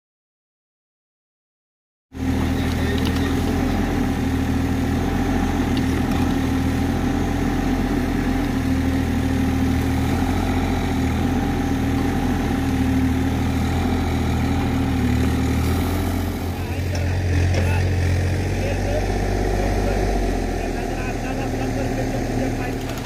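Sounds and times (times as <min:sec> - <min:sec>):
excavator diesel engine running: 0:02.2 - 0:23.0
excavator bucket digging: 0:02.3 - 0:04.2, 0:04.9 - 0:18.9, 0:21.5 - 0:23.0.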